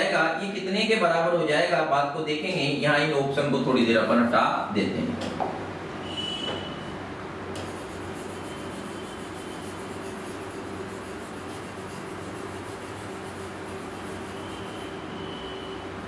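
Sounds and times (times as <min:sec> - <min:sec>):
stylus scribbling on touchscreen: 0:07.6 - 0:15.1.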